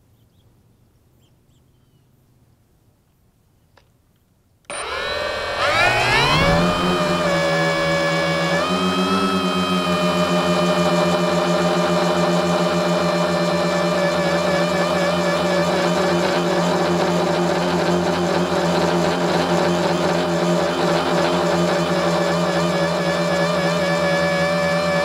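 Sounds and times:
drone motors and propellers whining: 0:04.7 - 0:25.0.

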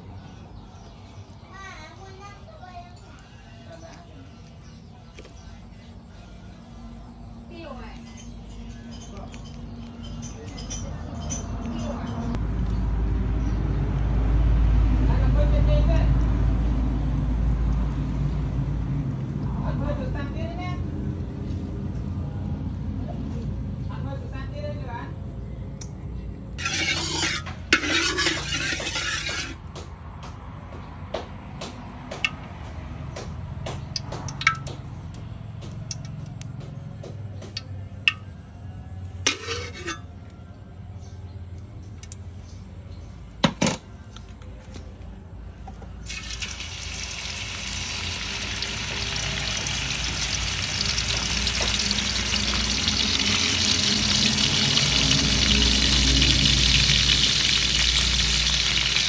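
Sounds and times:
beef sizzling in hot oil: 0:26.6 - 0:29.6, 0:46.1 - 0:59.0
metal spatula scraping wok: 0:26.6 - 0:29.6, 0:39.3 - 0:40.2, 0:47.3 - 0:59.0.

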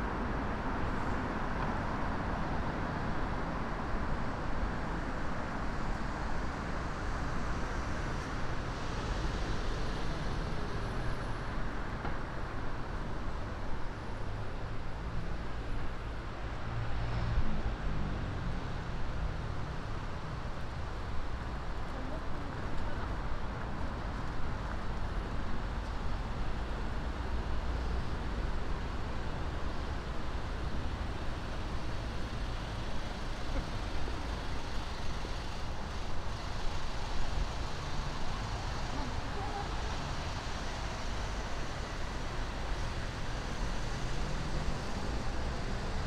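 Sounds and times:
road traffic rumble: 0:00.0 - 0:46.0.

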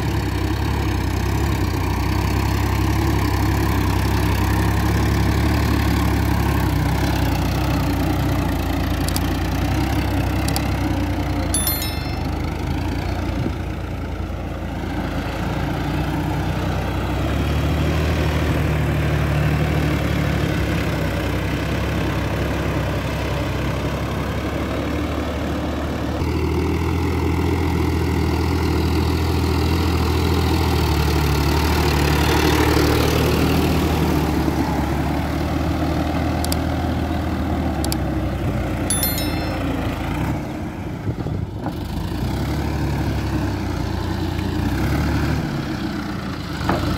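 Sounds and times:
short chime: 0:11.6 - 0:13.1, 0:38.9 - 0:40.6.

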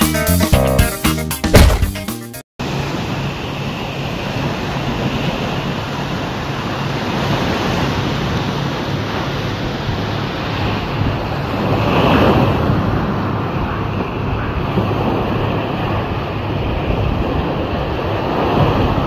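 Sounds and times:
surf washing onto beach: 0:02.6 - 0:19.0
wind buffeting microphone: 0:07.2 - 0:19.0.

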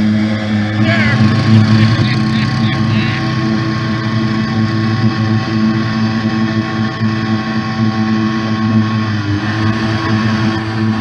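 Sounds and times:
off-road vehicle engine idling: 0:00.0 - 0:11.0.

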